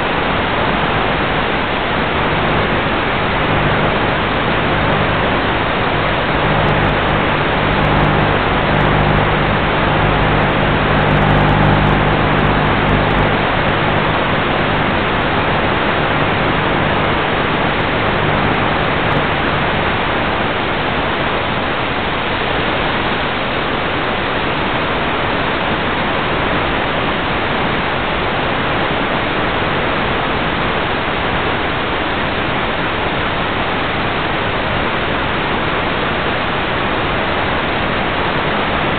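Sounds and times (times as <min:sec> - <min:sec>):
low hum: 0:00.8 - 0:20.8.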